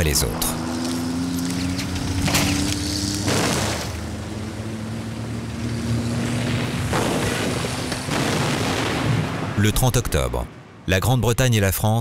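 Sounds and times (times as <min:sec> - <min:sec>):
propeller aircraft engine droning: 0:00.0 - 0:09.6.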